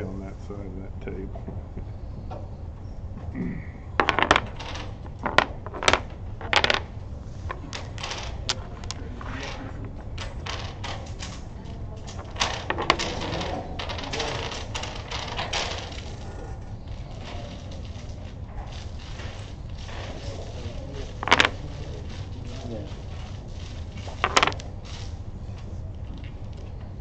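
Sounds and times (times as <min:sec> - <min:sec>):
dominoes clacking on wooden table: 0:04.0 - 0:25.2.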